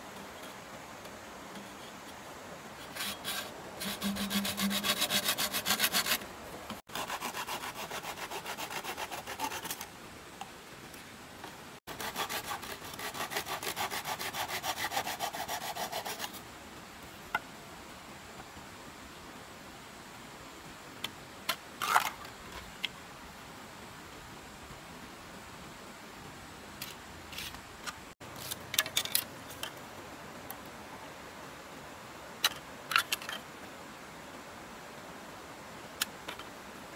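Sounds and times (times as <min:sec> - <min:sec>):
hand saw cutting bamboo: 0:02.8 - 0:06.2, 0:06.8 - 0:09.9, 0:11.9 - 0:16.4.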